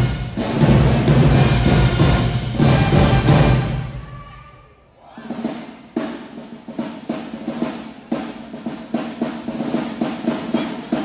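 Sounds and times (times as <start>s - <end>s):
bass drum accents: 0.0s - 4.1s
snare drum rolls: 0.0s - 4.3s, 5.2s - 11.0s
marching band tune: 0.0s - 11.0s.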